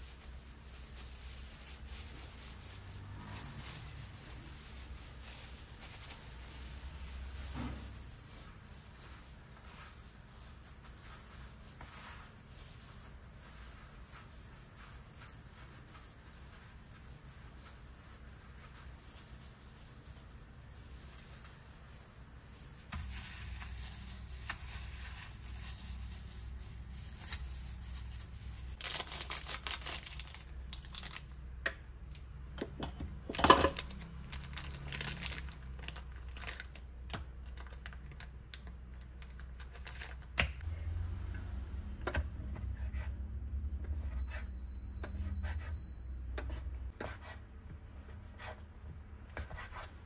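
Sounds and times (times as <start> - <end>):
plastic packaging crinkling: 0.0 - 11.7, 15.3 - 31.4, 33.3 - 40.4.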